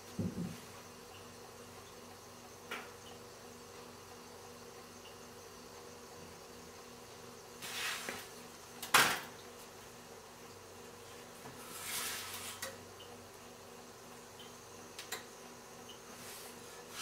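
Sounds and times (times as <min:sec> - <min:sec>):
spatula scraping griddle pan: 0:11.6 - 0:12.7.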